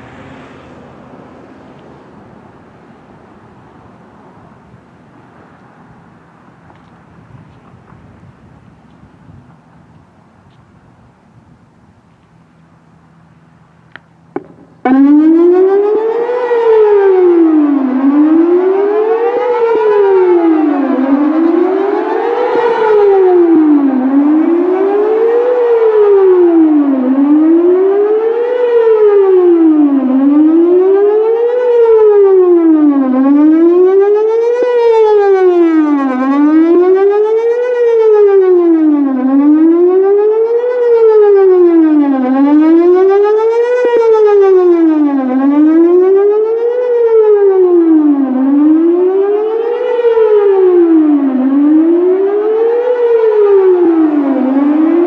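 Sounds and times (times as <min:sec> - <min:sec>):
siren wailing: 0:14.3 - 0:55.0.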